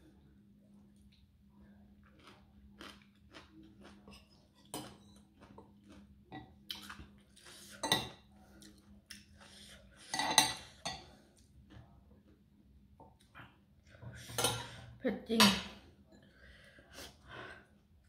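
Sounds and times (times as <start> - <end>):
chewing: 2.0 - 7.8
cutlery clinking on a plate: 10.1 - 11.1.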